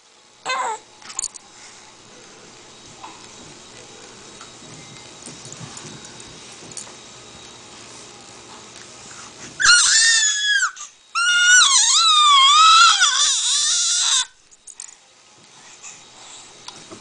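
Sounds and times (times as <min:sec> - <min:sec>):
baby squealing: 0:09.6 - 0:14.4.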